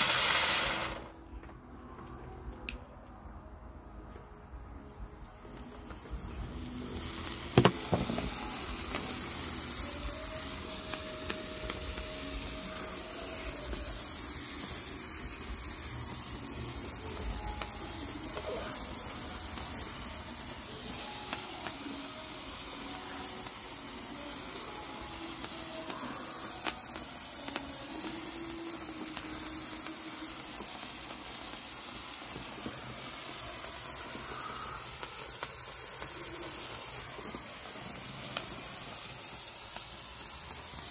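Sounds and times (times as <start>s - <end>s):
sparklers sizzling: 0.0s - 40.9s.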